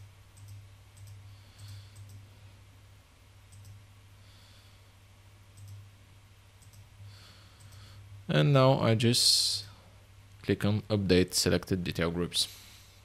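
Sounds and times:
low steady hum: 0.0s - 13.0s
computer mouse clicks: 0.4s - 2.2s, 3.5s - 3.8s, 5.5s - 5.8s, 6.6s - 6.9s, 7.6s - 7.9s
soft breaths: 1.1s - 2.8s, 4.1s - 5.1s, 7.0s - 8.2s, 12.4s - 13.0s.

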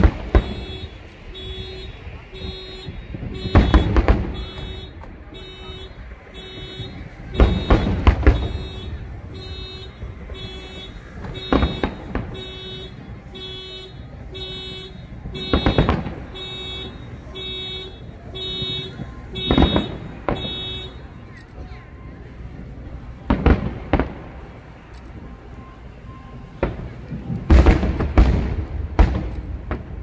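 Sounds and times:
fireworks bursting: 0.0s - 30.0s.

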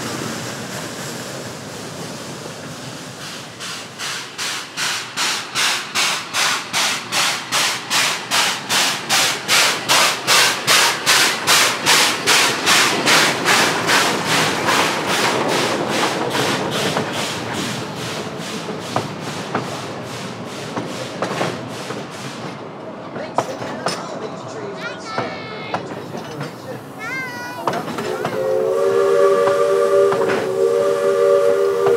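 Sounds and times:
steam locomotive chuffing: 0.0s - 31.9s
train rolling rumble: 0.0s - 31.9s
wheels clicking on rails: 25.1s - 28.5s.

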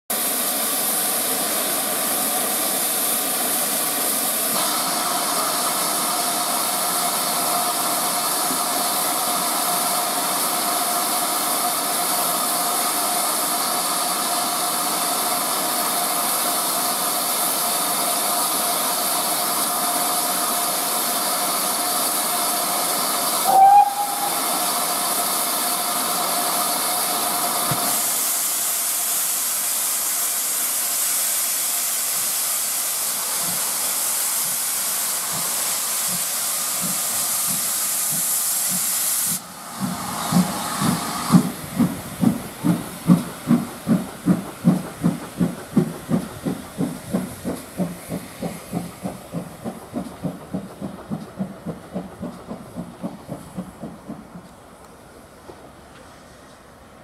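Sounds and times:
short loud steam blast: 0.1s - 43.7s
steam locomotive hissing: 0.1s - 57.0s.

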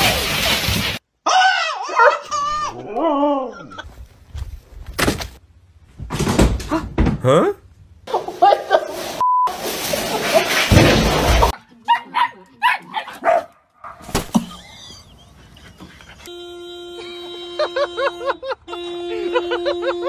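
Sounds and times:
dog yipping: 1.8s - 2.7s
car horn long tone: 16.2s - 20.0s.

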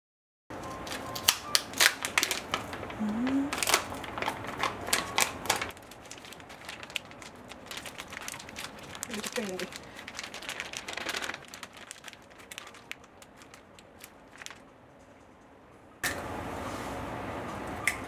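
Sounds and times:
plastic food pouch crinkling: 0.9s - 14.7s.

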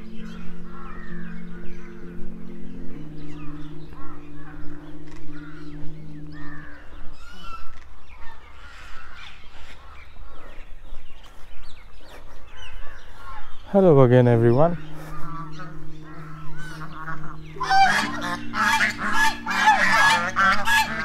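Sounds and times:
held low notes: 0.0s - 8.2s, 13.2s - 21.0s
birds chirping and calling: 0.0s - 21.0s.

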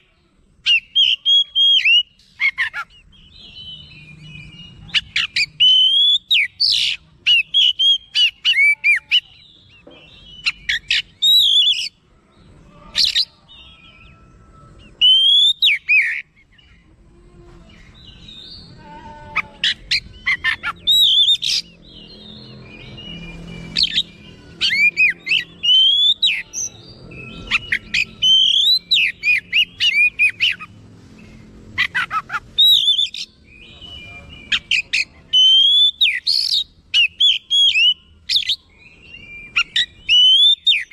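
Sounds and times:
bird singing whistled phrases: 0.6s - 12.0s, 15.0s - 16.2s, 19.6s - 30.7s, 32.6s - 40.9s.

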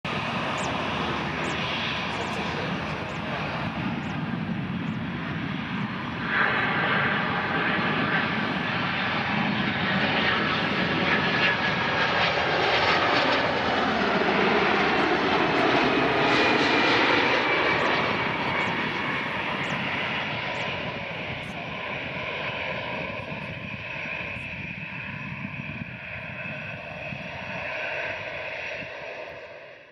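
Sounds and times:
loud jet engine noise: 0.0s - 29.9s
high engine whine falling in pitch: 0.1s - 3.4s.

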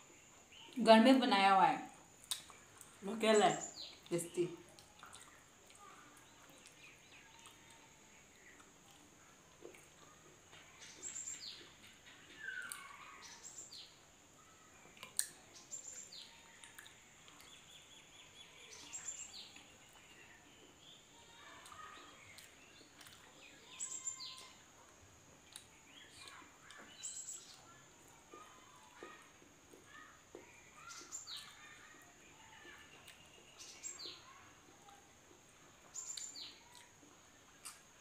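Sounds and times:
small birds chirping: 0.0s - 38.0s
people chewing: 2.2s - 3.0s, 4.0s - 13.1s, 14.8s - 15.6s, 16.2s - 17.6s, 21.4s - 32.0s, 32.6s - 33.6s, 34.5s - 38.0s.

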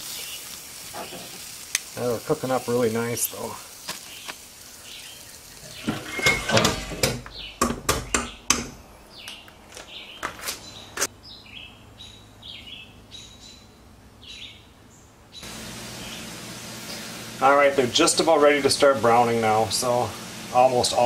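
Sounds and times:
small bird chirping: 0.0s - 1.4s, 3.3s - 5.9s, 7.3s - 16.3s
metal knocks and clanks: 5.7s - 8.8s.

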